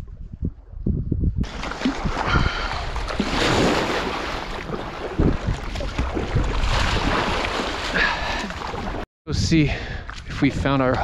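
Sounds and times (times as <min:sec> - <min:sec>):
wind buffeting microphone: 0:00.0 - 0:07.6
water slapping against kayak hull: 0:01.4 - 0:09.0.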